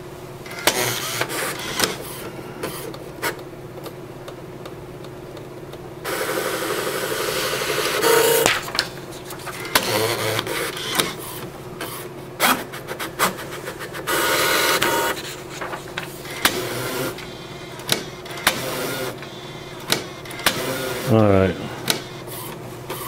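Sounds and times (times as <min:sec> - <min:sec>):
inkjet printer clicking and whirring: 0:00.5 - 0:03.9, 0:06.1 - 0:23.0.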